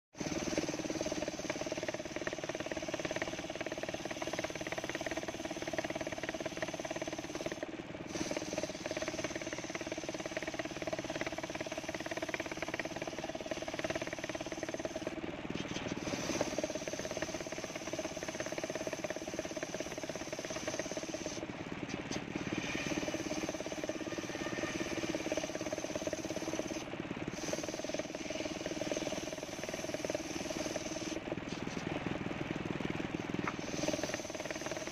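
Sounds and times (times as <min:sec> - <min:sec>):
circular saw cutting wood: 0:22.4 - 0:26.8.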